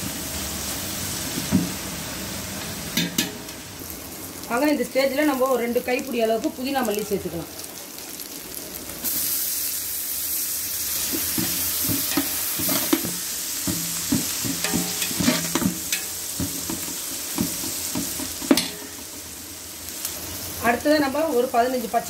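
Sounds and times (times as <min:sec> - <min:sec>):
food sizzling in pot: 0:00.0 - 0:22.0
metal spoon scraping pot: 0:11.4 - 0:16.8.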